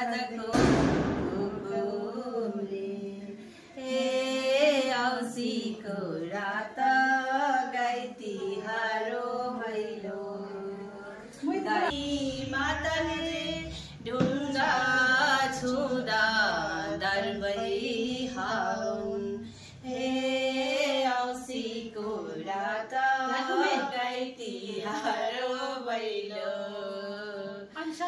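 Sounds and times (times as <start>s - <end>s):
women singing folk song together: 0.0s - 28.0s.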